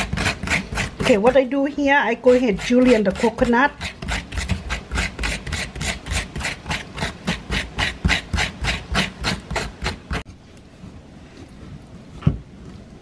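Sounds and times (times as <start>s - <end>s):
coconut shredder scraping: 0.0s - 10.3s.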